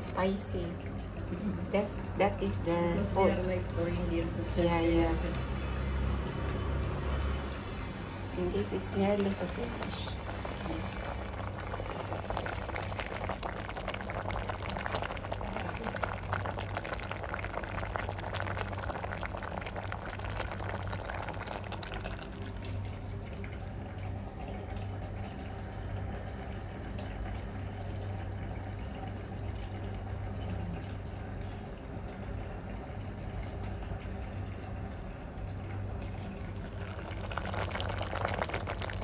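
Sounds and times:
steady low hum: 0:00.0 - 0:39.0
stew bubbles popping: 0:08.9 - 0:39.0.

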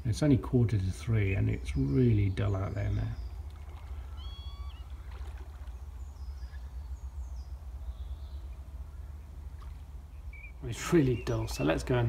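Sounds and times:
whistled bird call: 0:03.8 - 0:05.4, 0:10.2 - 0:11.9.

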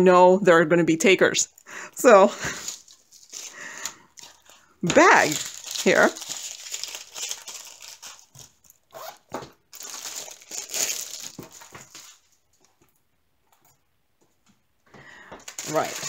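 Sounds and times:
plastic packaging crinkling: 0:02.1 - 0:13.0, 0:15.1 - 0:16.0.

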